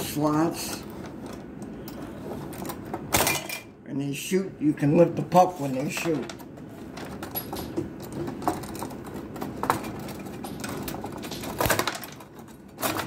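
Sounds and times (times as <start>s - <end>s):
table hockey rods rattling and clicking: 5.7s - 13.0s.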